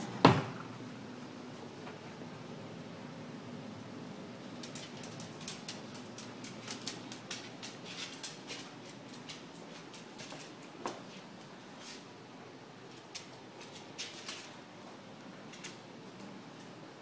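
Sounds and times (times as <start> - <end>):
dog claws clicking on wooden floor: 4.5 - 11.5, 12.9 - 14.6, 15.5 - 16.4.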